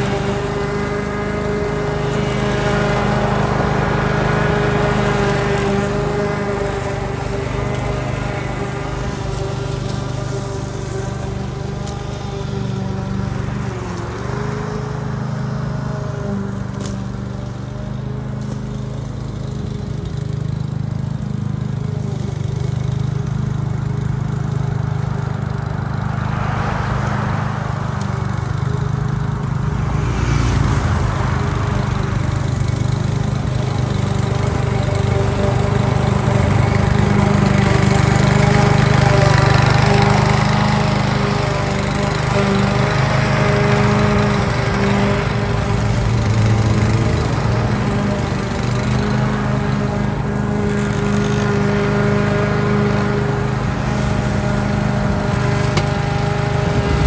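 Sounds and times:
lawn mower cutting grass: 0.0 - 57.0
rushing noise: 56.5 - 57.0.

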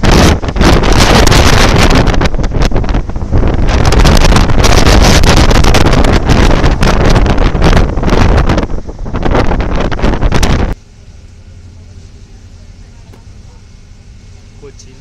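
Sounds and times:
wind buffeting the microphone: 0.0 - 10.8
vehicle road rumble: 0.0 - 15.0.

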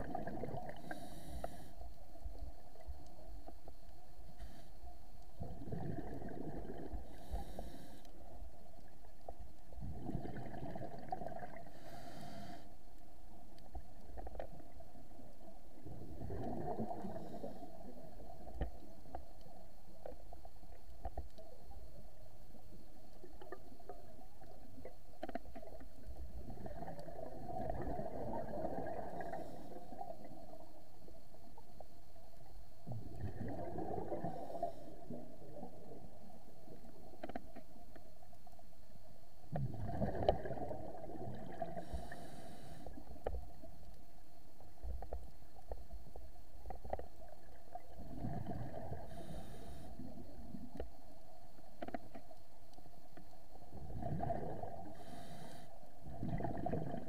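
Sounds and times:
exhaled bubbles gurgling underwater: 0.0 - 4.2, 4.9 - 57.0
faint steady hum: 0.0 - 57.0
hissing inhalations through regulator: 0.6 - 2.0, 5.8 - 8.4, 11.6 - 12.9, 41.6 - 43.3, 48.9 - 50.2, 54.8 - 55.9.

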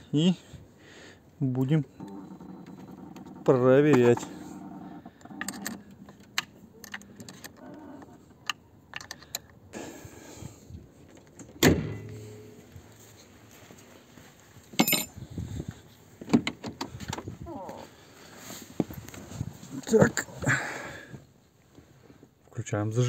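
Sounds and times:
heavy ringing thud: 11.6 - 12.7
metallic clinks of tools: 14.8 - 15.2.

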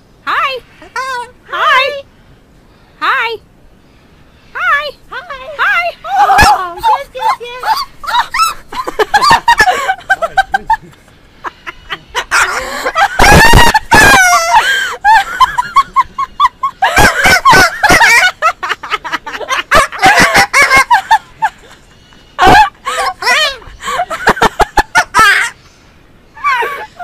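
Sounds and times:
parrot screeching and chattering: 11.6 - 14.9.

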